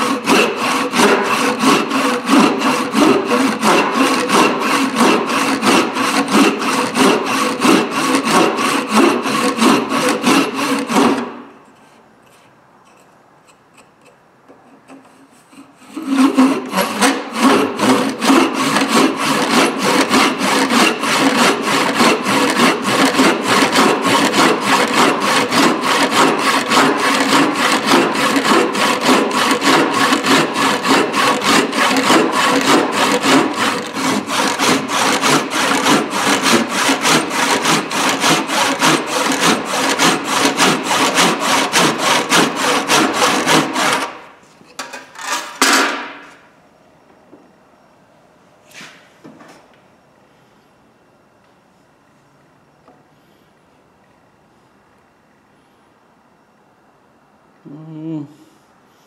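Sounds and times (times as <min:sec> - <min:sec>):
handsaw cutting wood: 0:00.0 - 0:11.4, 0:15.5 - 0:44.3.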